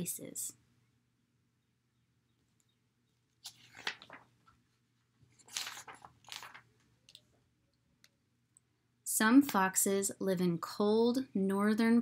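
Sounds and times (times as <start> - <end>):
paper pages rustling: 3.4 - 7.3.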